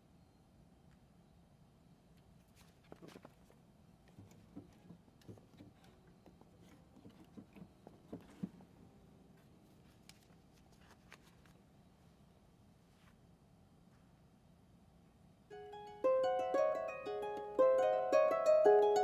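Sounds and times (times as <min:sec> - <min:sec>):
faint rustles: 0:02.2 - 0:14.4.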